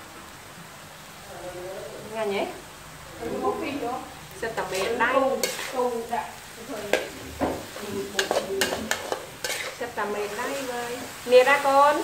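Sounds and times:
hot oil sizzling: 0:00.0 - 0:12.0
metal spatula scraping a wok: 0:04.4 - 0:06.1, 0:06.8 - 0:11.2.

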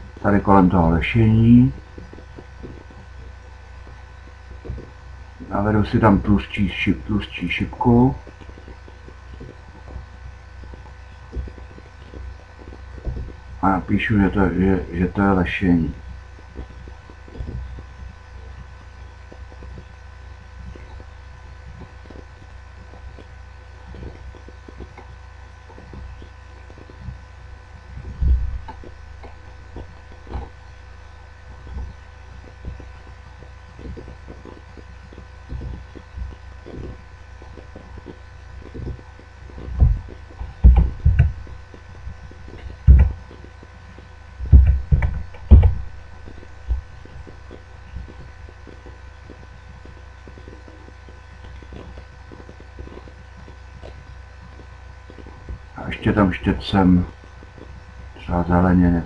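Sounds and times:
electrical hum with high whine: 0:00.0 - 0:59.0
dull low thump: 0:39.7 - 0:43.2, 0:44.4 - 0:47.0.

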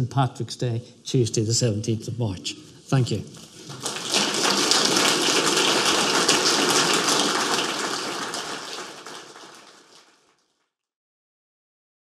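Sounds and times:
audience applauding: 0:03.4 - 0:10.4.

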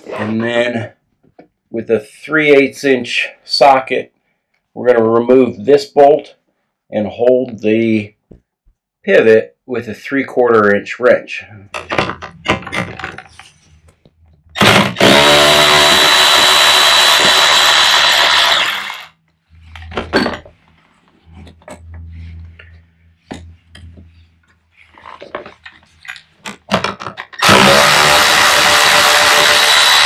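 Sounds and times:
cordless drill whining: 0:14.6 - 0:19.1, 0:27.4 - 0:30.0.

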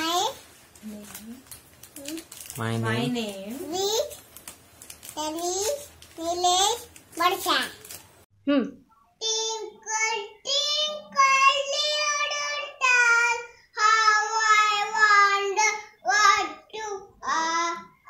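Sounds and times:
boy singing: 0:09.2 - 0:18.0.

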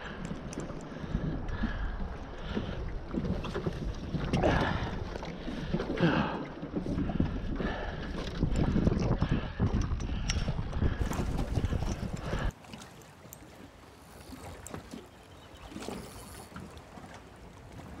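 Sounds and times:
wind buffeting microphone: 0:06.6 - 0:12.6.

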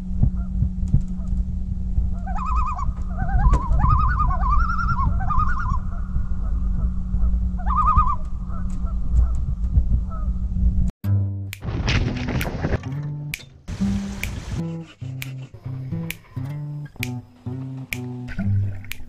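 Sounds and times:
low hum and rumble: 0:00.0 - 0:10.9
waterbirds warbling calls: 0:02.1 - 0:09.3.

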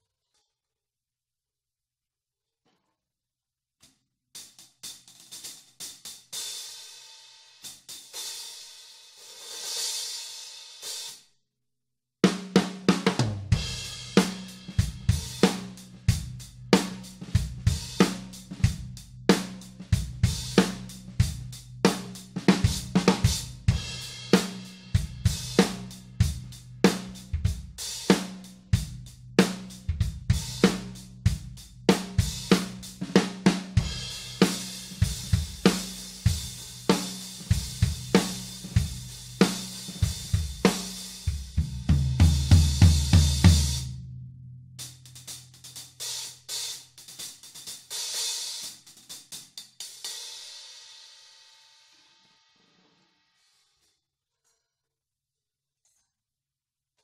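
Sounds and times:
drum kit groove: 0:04.4 - 0:11.2, 0:12.2 - 0:44.0, 0:44.8 - 0:50.8
fast drum fill on low drums: 0:12.2 - 0:44.0, 0:44.8 - 0:50.4
soft hi-hat strokes: 0:13.5 - 0:43.8, 0:44.8 - 0:51.2.

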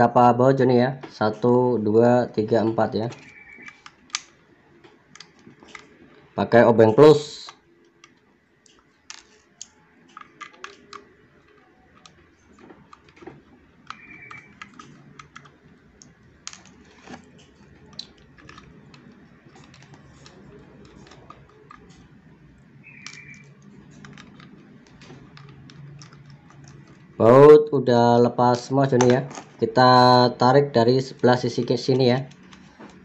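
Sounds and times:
screwdriver clicking on plastic: 0:03.1 - 0:04.4, 0:07.4 - 0:22.1, 0:22.9 - 0:27.1.

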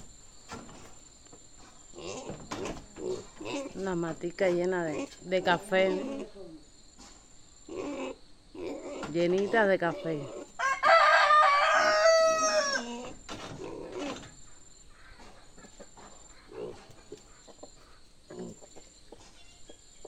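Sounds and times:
rooster crowing: 0:10.6 - 0:13.1
chickens clucking: 0:11.6 - 0:20.0.

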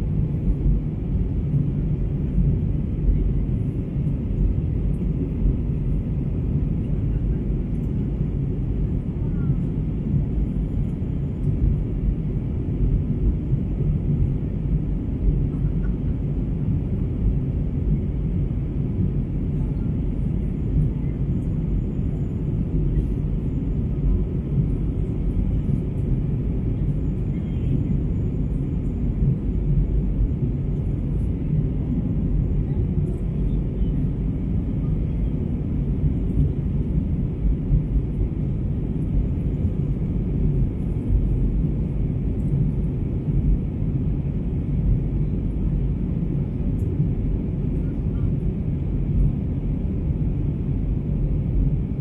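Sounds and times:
jet engines rumbling in cabin: 0:00.0 - 0:52.0.

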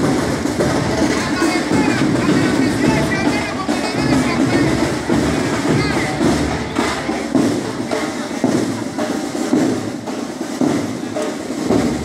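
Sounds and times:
marching band drums: 0:00.0 - 0:12.0.

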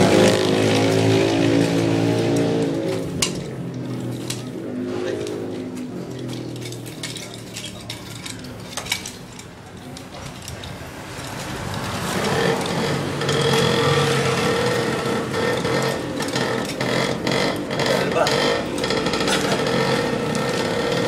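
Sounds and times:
small engine running: 0:11.6 - 0:21.0.

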